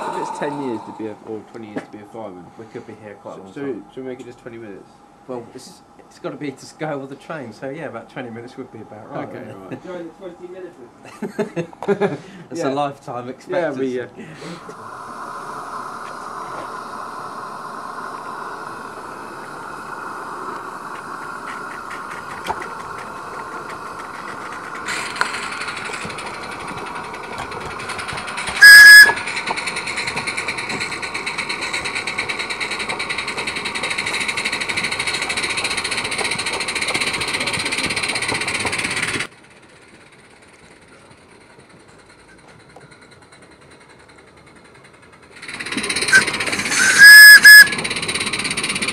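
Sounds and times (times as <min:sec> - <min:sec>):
steam whistle blast: 0:00.0 - 0:01.2, 0:14.9 - 0:30.8, 0:45.8 - 0:48.0
steam hissing: 0:00.0 - 0:08.6, 0:13.5 - 0:48.9.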